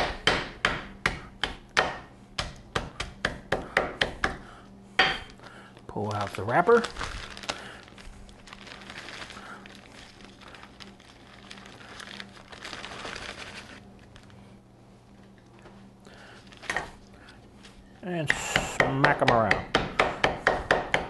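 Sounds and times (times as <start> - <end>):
plastic bag and foil crinkling: 5.2 - 18.0.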